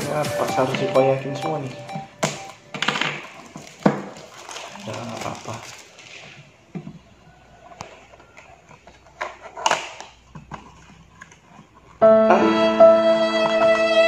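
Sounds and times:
loud synth music: 0.0 - 2.7
paper rustling: 3.2 - 6.6.

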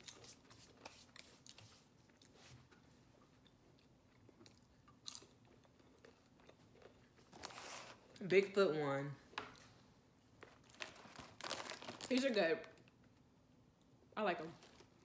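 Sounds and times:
chewing potato chips: 3.4 - 7.6
foil chip bag rustling: 10.4 - 12.7.

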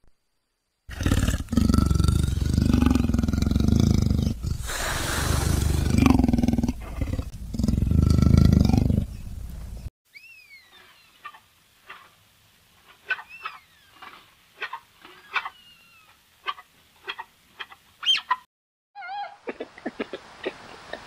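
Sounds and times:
leopard growling: 0.9 - 9.4.

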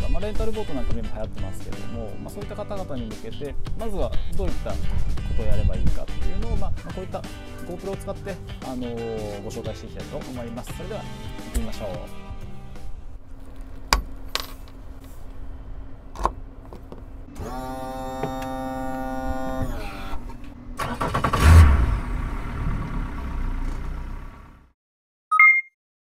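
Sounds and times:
outboard motor running: 17.3 - 20.5
starter motor whine: 17.3 - 24.4
two-tone beep: 25.3 - 25.8.

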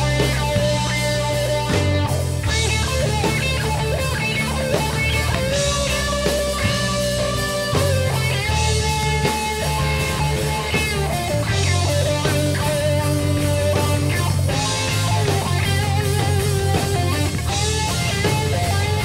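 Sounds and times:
bass guitar: 0.0 - 19.0
drums: 0.0 - 19.0
electric guitar bending notes: 0.0 - 19.0.

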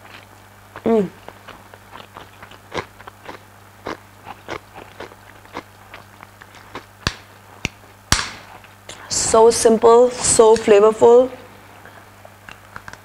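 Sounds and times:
person chewing food: 0.0 - 9.0
faint steady hum: 0.0 - 13.0.

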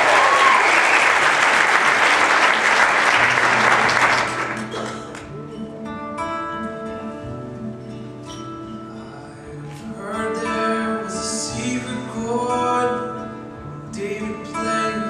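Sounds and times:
audience applause: 0.0 - 5.3
acoustic guitar picking chords: 0.0 - 15.0.

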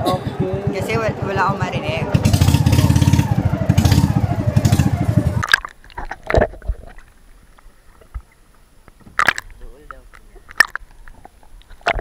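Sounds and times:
boat engine running: 0.0 - 5.8
underwater clicks and knocks: 5.4 - 12.0.

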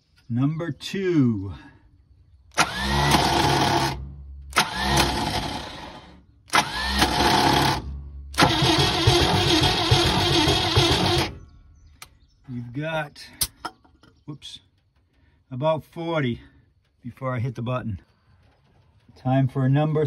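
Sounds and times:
engine cranked by starter: 2.5 - 12.1.

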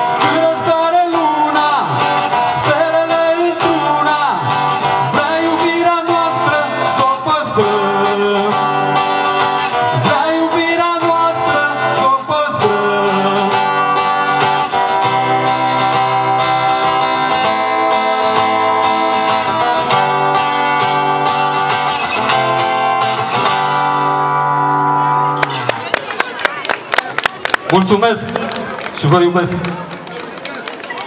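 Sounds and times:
person singing: 0.0 - 14.3
acoustic guitar strumming: 0.0 - 25.9.

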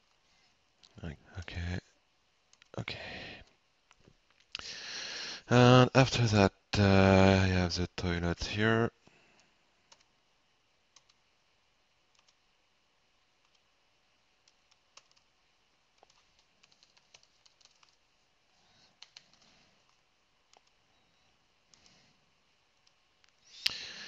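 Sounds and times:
computer mouse clicks: 9.4 - 10.1, 10.9 - 11.2, 12.1 - 12.4, 13.4 - 13.7, 14.4 - 15.3, 16.0 - 18.0, 18.9 - 20.8, 21.7 - 22.0
keyboard typing: 9.9 - 10.1, 10.9 - 11.2, 12.1 - 12.4, 14.4 - 15.3, 16.0 - 18.0, 18.8 - 20.8.

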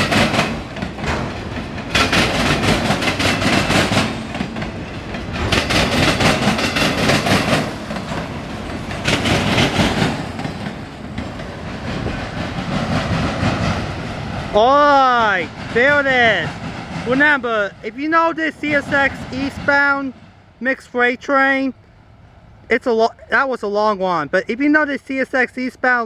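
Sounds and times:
train wheels clattering on rails: 0.0 - 20.0
train rumble: 0.0 - 26.0.

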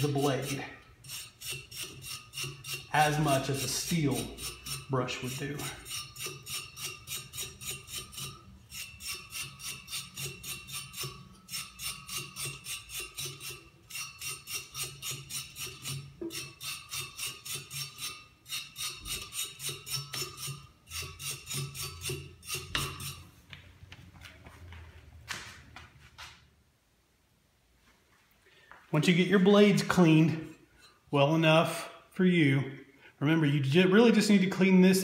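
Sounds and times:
wire brush scrubbing metal blades: 0.0 - 23.3.

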